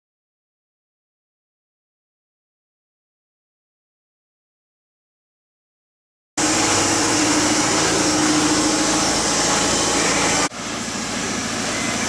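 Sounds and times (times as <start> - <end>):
low machine hum: 6.4 - 12.0
machine hissing: 6.4 - 12.0.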